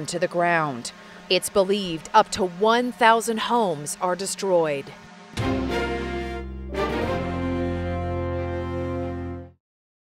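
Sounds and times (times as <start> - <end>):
theme music held chord: 5.0 - 9.6.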